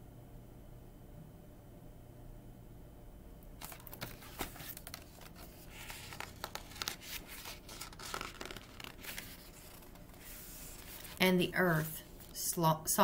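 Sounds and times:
faint room hum: 0:00.0 - 0:13.0
book pages turning and rustling: 0:03.6 - 0:12.4.

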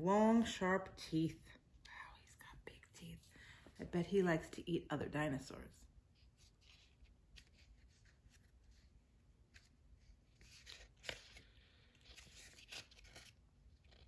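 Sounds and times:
paper pages rustling: 0:06.2 - 0:14.0.

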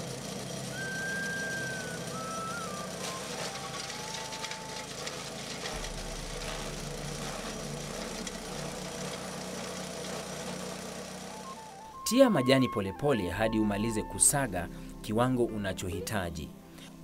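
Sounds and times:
small engine humming: 0:00.0 - 0:12.0
stalks being shredded: 0:02.0 - 0:11.8.

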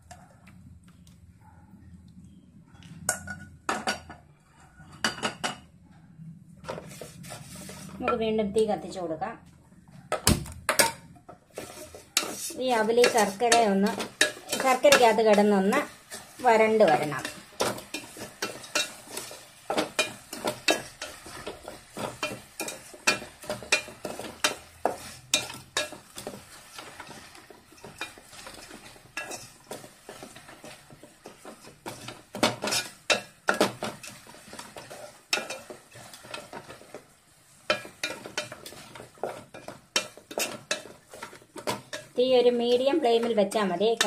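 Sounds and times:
wooden spatula scraping a pot: 0:06.6 - 0:08.2, 0:11.5 - 0:44.0
light sizzle: 0:06.6 - 0:09.6, 0:10.6 - 0:44.0.

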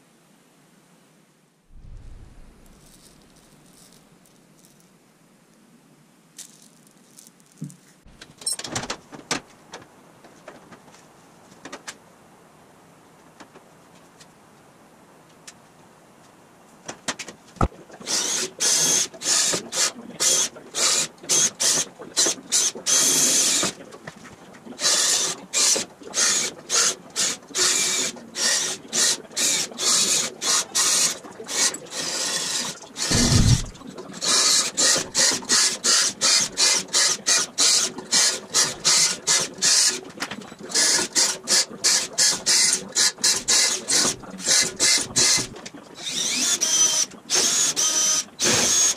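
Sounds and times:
low thump: 0:01.7 - 0:03.4, 0:33.1 - 0:33.8
cordless drill drilling metal: 0:31.9 - 0:33.8, 0:46.0 - 0:48.9.

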